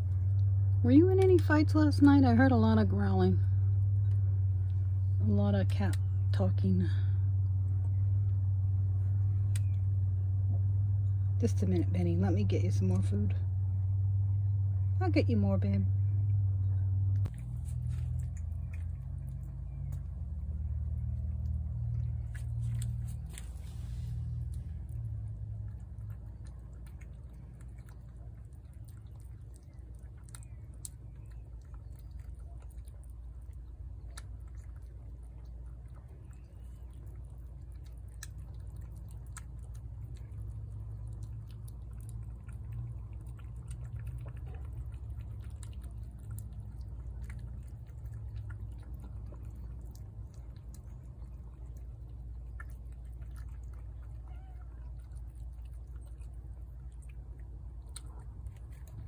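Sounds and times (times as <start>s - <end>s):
low steady rumble: 0.0s - 59.0s
cat chewing and licking: 17.2s - 59.0s.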